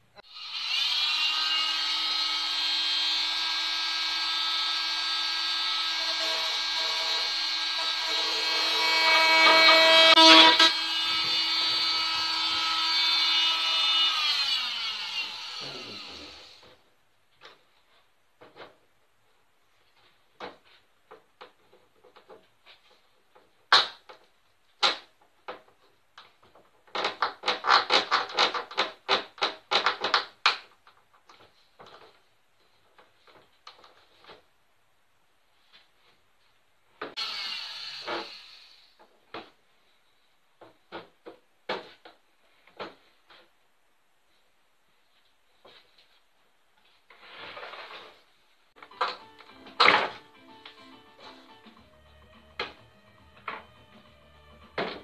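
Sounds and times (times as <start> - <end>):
power drill boring into wood: 0.3 - 16.7, 37.2 - 38.9.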